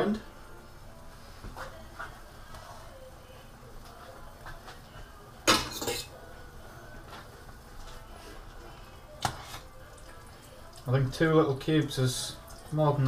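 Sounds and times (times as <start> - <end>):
metal spoon clinking in mug: 5.5 - 6.1.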